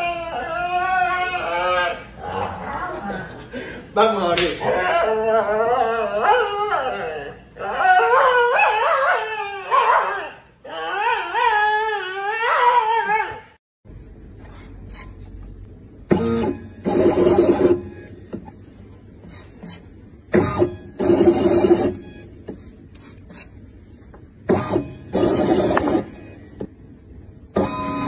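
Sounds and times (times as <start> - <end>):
dog howling whine: 0.0 - 3.0, 4.6 - 13.6
stepper motors whirring: 16.1 - 18.6, 19.2 - 23.6, 24.5 - 26.7.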